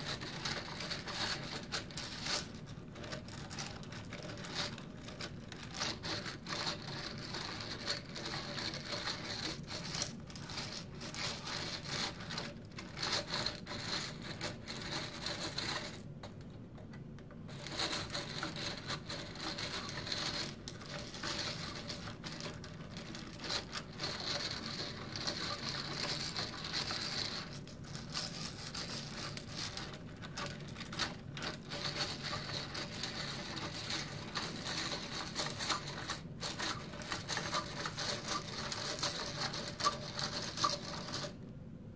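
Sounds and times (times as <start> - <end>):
ball screw balls clicking and rattling: 17.3 - 41.4.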